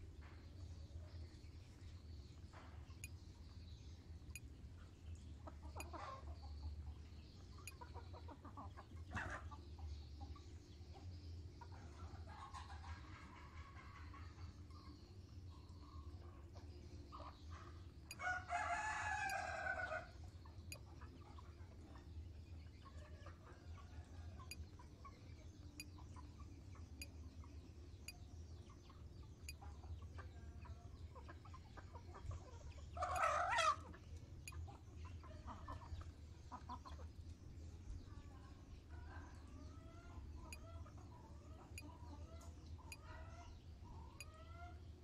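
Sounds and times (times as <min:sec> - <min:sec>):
faint chicken clucks: 0:00.0 - 0:45.0
rooster crowing: 0:18.2 - 0:20.1.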